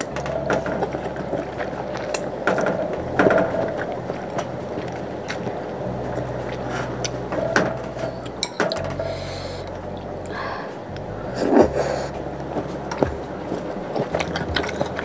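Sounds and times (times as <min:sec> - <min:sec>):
chewing: 0:00.0 - 0:15.0
breathy mouth noise: 0:09.0 - 0:12.2.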